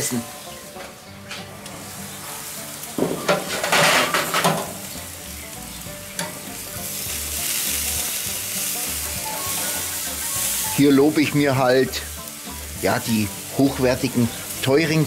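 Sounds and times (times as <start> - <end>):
meat sizzling on grill: 0.0 - 15.0
metal grill lid rattling: 2.9 - 5.0, 6.2 - 6.5.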